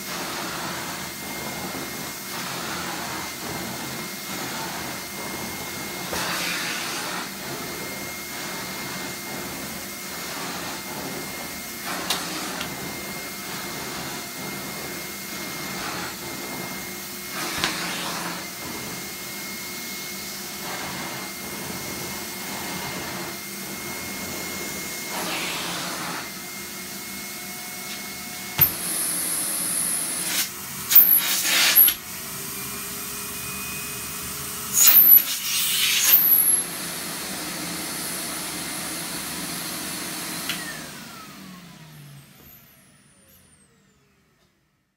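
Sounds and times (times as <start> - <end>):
floor tool swishing over carpet: 0.0 - 32.0
vacuum cleaner whining: 0.0 - 44.9.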